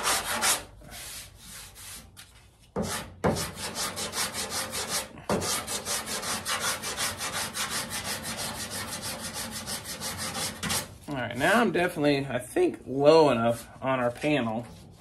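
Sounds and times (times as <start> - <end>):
sandpaper rasping strokes: 0.0 - 11.7.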